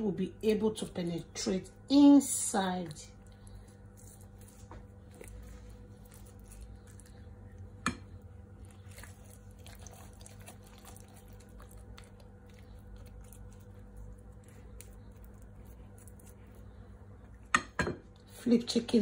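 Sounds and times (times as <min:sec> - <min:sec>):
hands squishing paste into chicken: 0:03.0 - 0:17.6.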